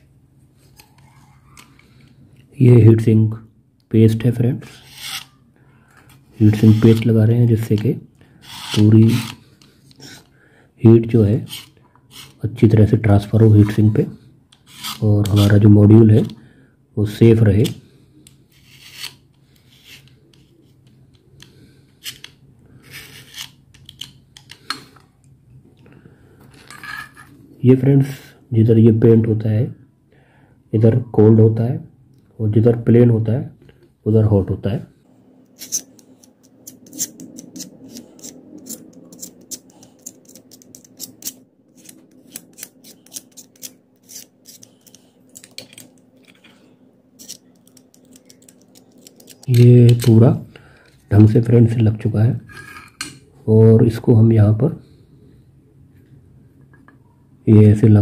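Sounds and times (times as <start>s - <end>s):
faint steady hum: 0.0s - 58.0s
knife blade scraping ceramic: 4.7s - 5.3s, 14.7s - 15.6s, 35.6s - 46.4s, 47.2s - 50.2s, 52.5s - 53.2s.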